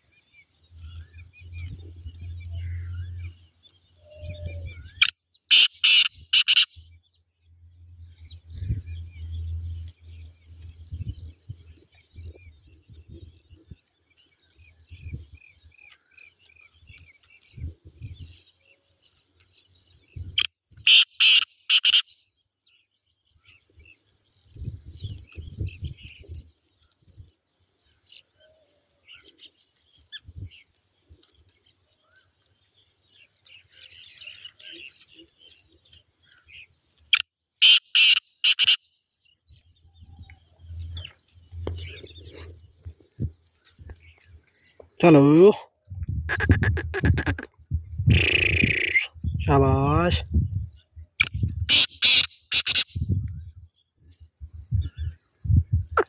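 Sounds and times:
francolin calling: 0.0s - 22.1s, 27.8s - 42.8s, 43.4s - 53.4s
small birds chirping: 0.0s - 56.0s.

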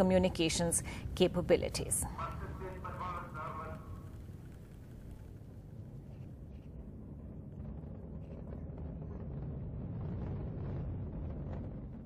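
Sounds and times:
rocket launch rumble: 2.4s - 12.0s.

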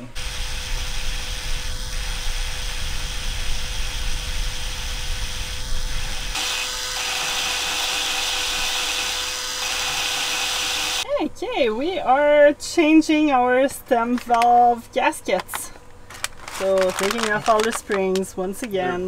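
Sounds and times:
drill motor whining: 0.0s - 11.0s
valve grinding against seat: 0.0s - 11.0s.

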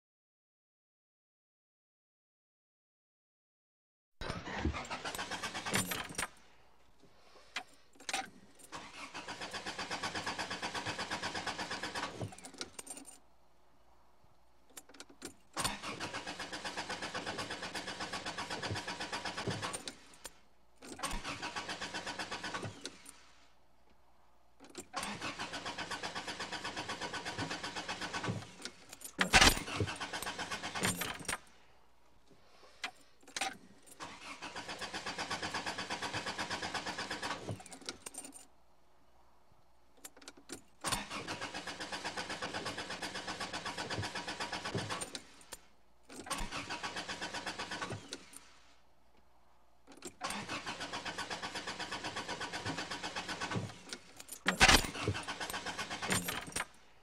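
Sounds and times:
starter motor cranking engine: 4.2s - 6.3s, 8.7s - 12.4s, 15.6s - 20.2s, 21.0s - 23.2s, 24.9s - 31.5s, 34.0s - 37.8s, 40.8s - 45.6s, 46.2s - 48.5s, 50.1s - 56.7s.

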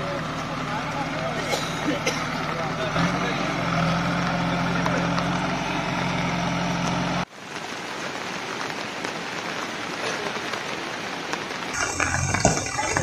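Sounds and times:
diesel engine running: 0.0s - 7.3s, 11.8s - 13.0s
floodwater rushing: 0.0s - 13.0s
rain hissing: 0.0s - 13.0s.

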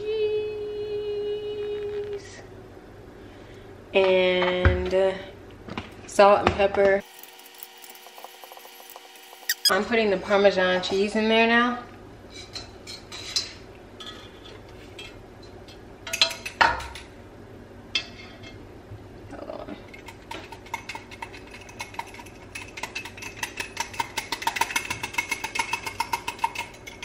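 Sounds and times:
whisk clinking against pan: 20.1s - 27.0s.

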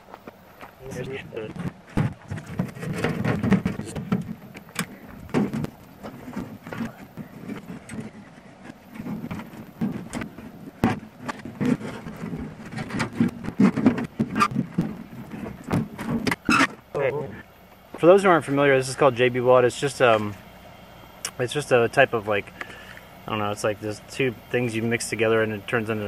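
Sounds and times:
metal knocks clanks and scrapes: 1.4s - 16.8s.

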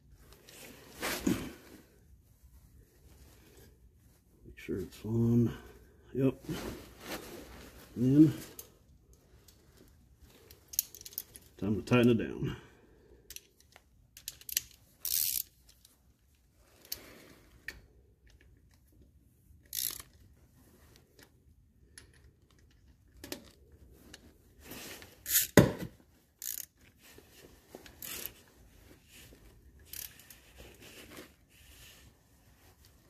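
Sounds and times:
socket ratchet clicking: 14.2s - 15.6s, 19.7s - 20.1s, 26.4s - 26.7s.

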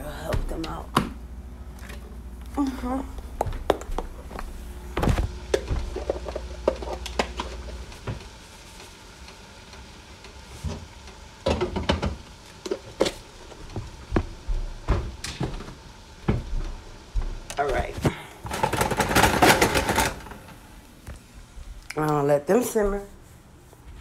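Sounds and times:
faint sizzle: 1.4s - 19.3s.

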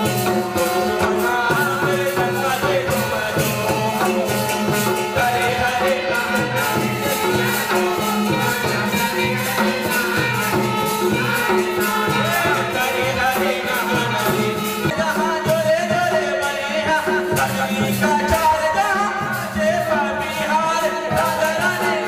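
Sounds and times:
rattling percussion beat: 0.0s - 22.0s.

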